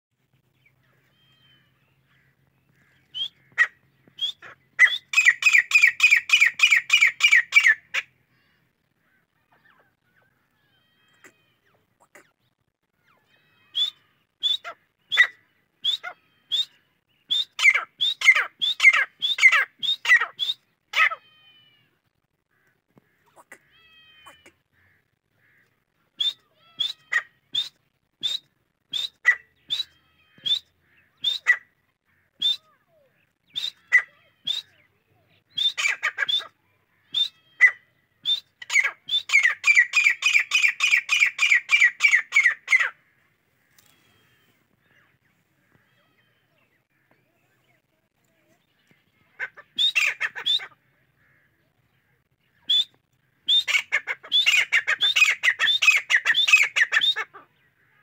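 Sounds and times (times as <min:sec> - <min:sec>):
bird calling in sharp high notes: 0:01.0 - 0:08.6, 0:13.0 - 0:21.6, 0:26.1 - 0:43.0, 0:48.7 - 0:50.8, 0:52.5 - 0:57.3.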